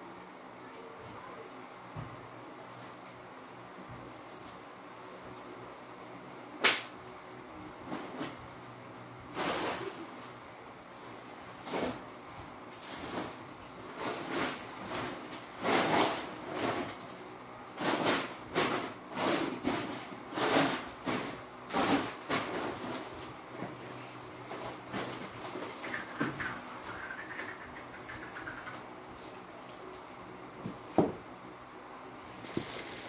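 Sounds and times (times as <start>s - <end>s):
broom sweeping floor: 0.7s - 3.2s, 9.3s - 10.2s, 10.9s - 28.4s.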